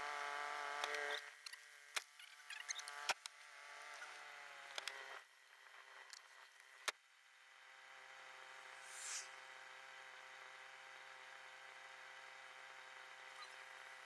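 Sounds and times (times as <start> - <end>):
short hiss: 8.8 - 9.4.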